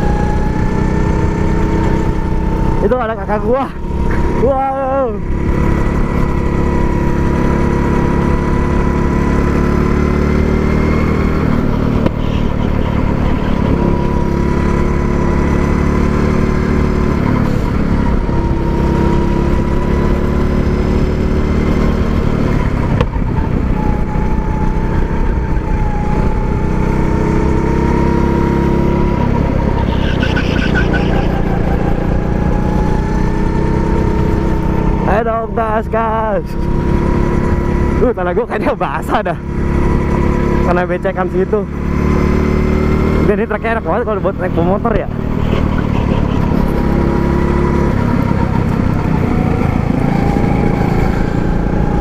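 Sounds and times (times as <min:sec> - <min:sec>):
go-kart engine running: 0:00.0 - 0:52.0.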